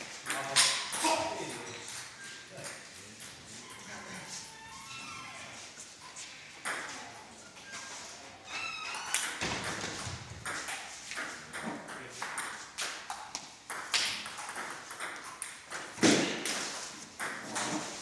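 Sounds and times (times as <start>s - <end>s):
ball clicking off paddles: 9.1s - 18.0s
ball bouncing on table: 9.2s - 16.6s.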